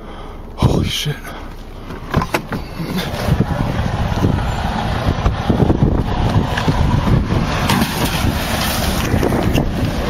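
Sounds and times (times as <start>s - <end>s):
road noise inside moving car: 0.0s - 10.0s
low thumps: 1.9s - 10.0s
wind buffeting microphone: 2.2s - 10.0s.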